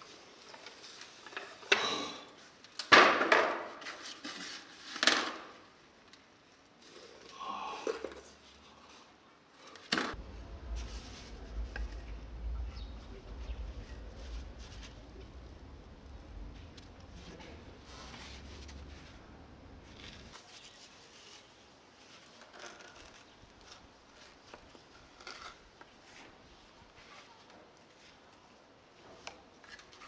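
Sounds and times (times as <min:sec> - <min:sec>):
low steady rumble: 0:10.2 - 0:20.3.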